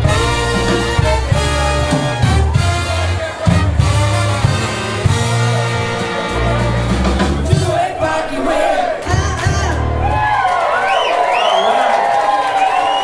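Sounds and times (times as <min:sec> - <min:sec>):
brass band playing: 0:00.0 - 0:09.9.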